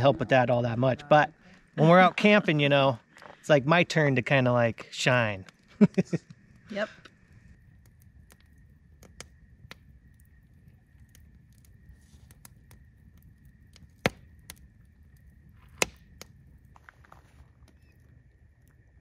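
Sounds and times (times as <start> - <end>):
campfire crackling: 0.0 - 19.0
loud fire pops: 5.4 - 19.0.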